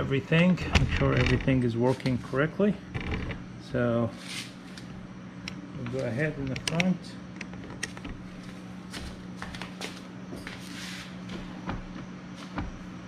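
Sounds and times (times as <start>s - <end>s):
steady low hum: 0.0s - 13.0s
handling clicks and knocks: 5.5s - 8.2s
footsteps: 8.3s - 12.8s.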